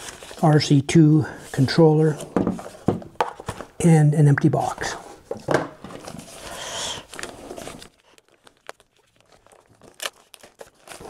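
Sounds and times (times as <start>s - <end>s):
plastic bag crinkling: 6.0s - 11.0s.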